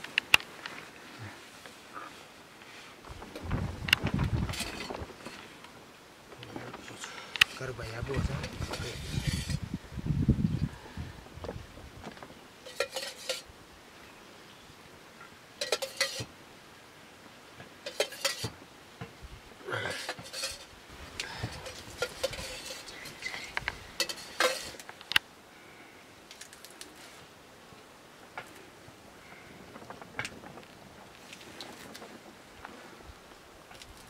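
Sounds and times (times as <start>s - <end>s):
metal ladle clinking: 12.6s - 13.4s, 15.6s - 16.3s, 17.9s - 18.5s, 19.9s - 20.7s, 21.5s - 24.8s.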